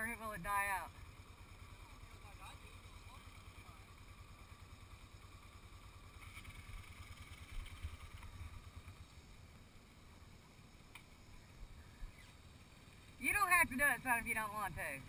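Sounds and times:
atv engine low rumble: 0.0s - 15.0s.

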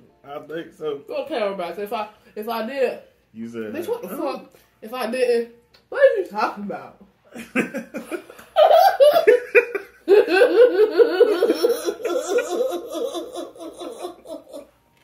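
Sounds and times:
man and woman laughing: 7.3s - 14.8s.

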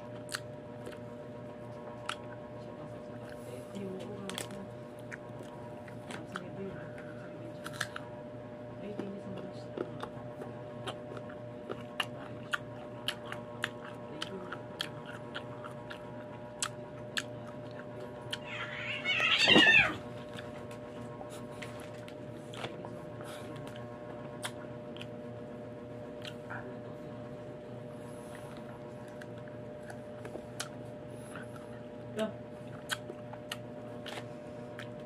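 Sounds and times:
mouth clicks and lip smacks: 32.8s - 35.0s.

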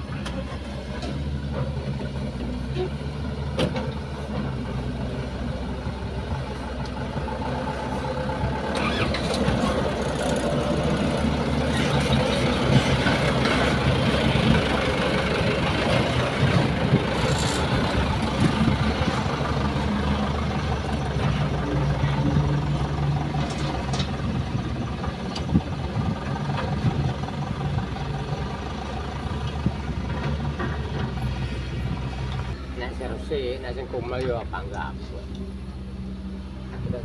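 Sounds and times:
dump truck diesel engine passing: 0.0s - 37.0s
second truck engine: 0.0s - 37.0s.

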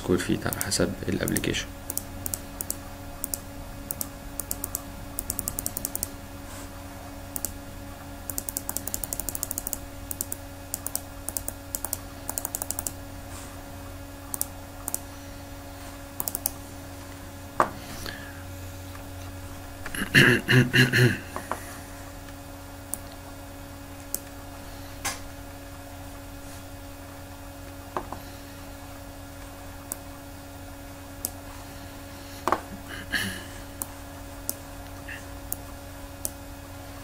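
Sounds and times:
low electrical hum: 0.0s - 37.0s
computer keyboard clicks: 0.5s - 6.1s, 8.3s - 13.0s, 14.3s - 15.0s, 16.2s - 16.6s.

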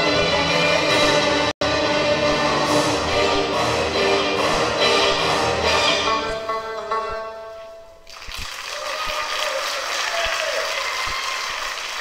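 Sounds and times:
dance music: 0.0s - 6.4s
audience applause: 8.1s - 12.0s.

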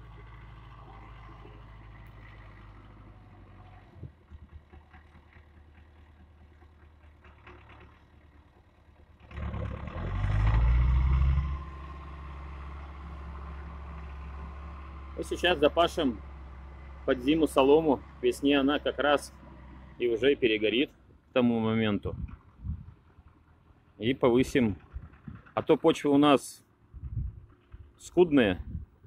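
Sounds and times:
tractor diesel engine running: 0.0s - 29.0s
clatter: 3.6s - 11.6s, 22.0s - 26.4s, 27.0s - 28.1s.

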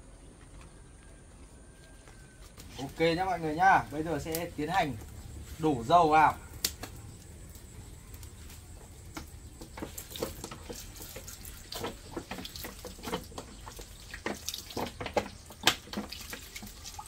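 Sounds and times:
oil glugging from container: 9.6s - 17.0s.

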